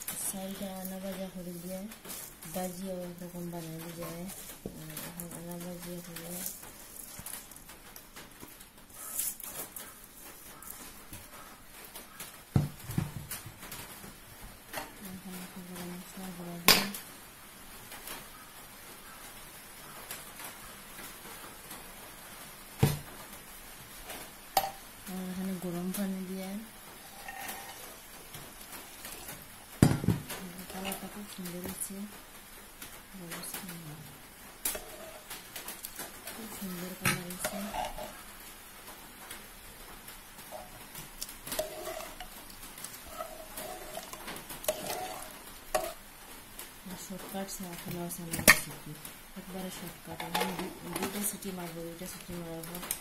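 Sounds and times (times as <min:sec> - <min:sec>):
ladle stirring rice in a pot: 0:00.1 - 0:07.7, 0:27.0 - 0:29.6, 0:30.4 - 0:31.8, 0:34.6 - 0:38.3, 0:40.4 - 0:46.1.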